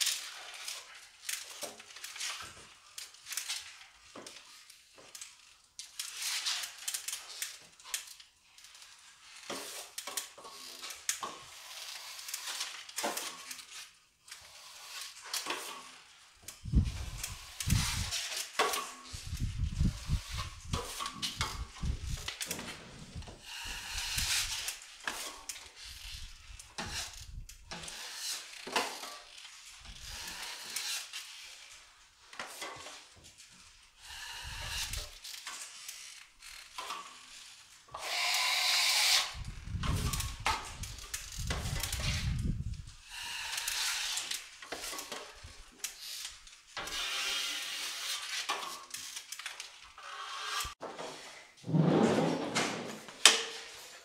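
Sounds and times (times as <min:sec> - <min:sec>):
trowel scraping on drywall: 0:22.4 - 0:25.4, 0:27.7 - 0:29.0, 0:50.0 - 0:54.0.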